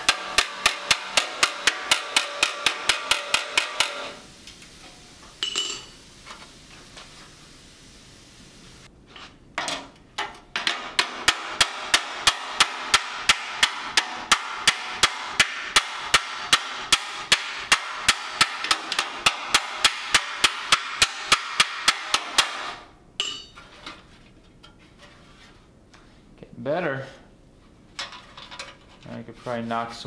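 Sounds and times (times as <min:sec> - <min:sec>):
hammer ringing on steel panel: 0:00.0 - 0:04.1.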